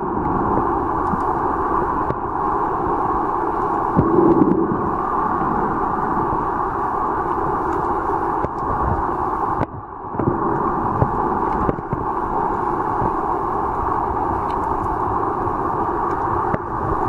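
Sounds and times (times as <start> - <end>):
muffled underwater rush: 0.0 - 17.0
faint underwater clicks: 0.2 - 1.4, 7.2 - 8.9, 13.0 - 15.1, 16.0 - 16.7.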